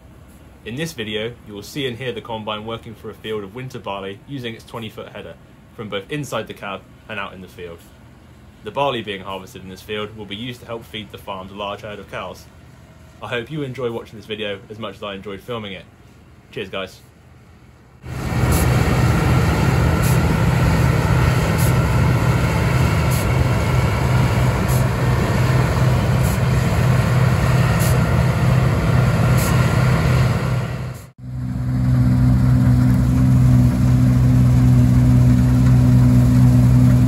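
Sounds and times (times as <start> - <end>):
combine harvester engine humming: 17.2 - 37.0.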